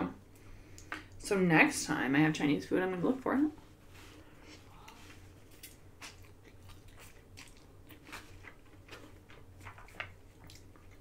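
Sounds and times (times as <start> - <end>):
mouth clicks and smacks chewing: 5.6 - 11.0.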